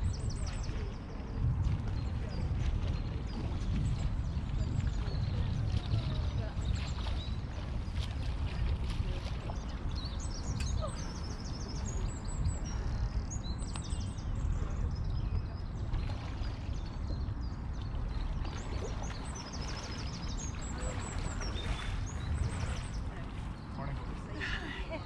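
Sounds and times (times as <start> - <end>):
wind rumble on microphone: 0.0 - 25.0.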